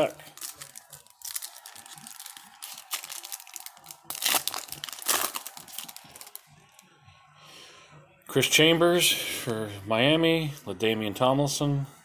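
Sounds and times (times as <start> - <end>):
foil wrapper crinkling: 0.1 - 6.5
foil pack ripping: 0.2 - 6.4.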